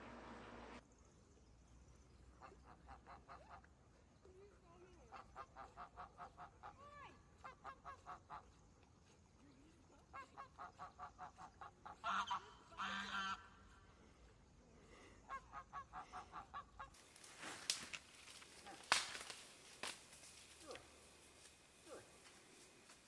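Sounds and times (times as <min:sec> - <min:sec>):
goose honking: 0:10.4 - 0:13.6
sharp cracks and snaps: 0:17.0 - 0:21.6.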